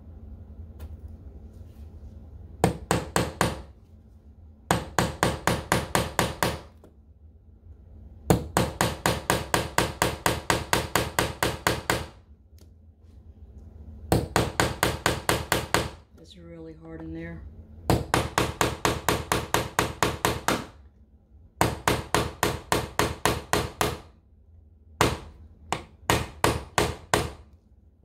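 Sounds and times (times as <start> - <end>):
hammer tapping nail into wood: 2.6 - 3.7, 4.7 - 6.9, 8.3 - 12.2, 17.9 - 20.7, 21.6 - 24.1, 25.0 - 27.4.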